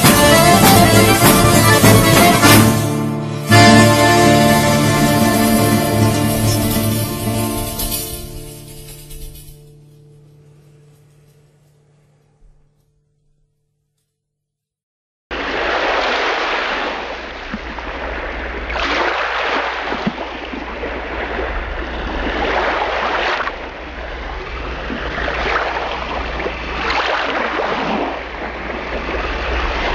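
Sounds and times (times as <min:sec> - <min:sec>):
sea waves washing onto shore: 0:15.3 - 0:29.9.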